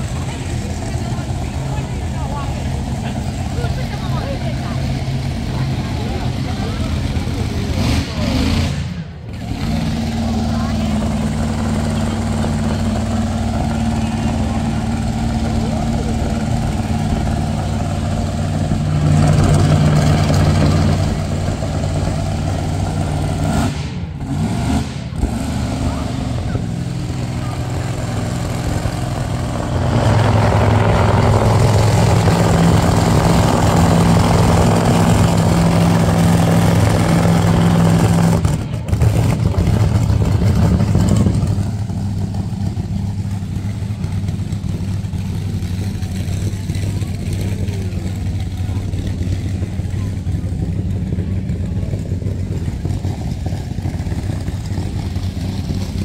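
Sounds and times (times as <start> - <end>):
car engines driving past: 0.0 - 56.0.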